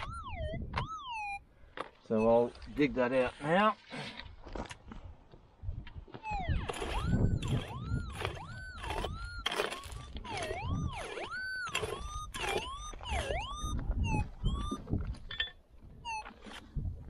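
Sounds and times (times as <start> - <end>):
metal detector warbling tones: 0.0 - 1.4, 6.2 - 16.7
pick digging into stony soil: 6.6 - 13.5.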